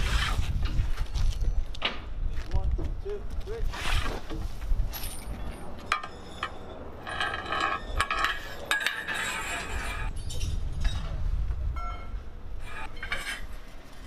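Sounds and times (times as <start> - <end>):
metallic squeaking and scraping: 3.7 - 11.1, 11.8 - 14.0.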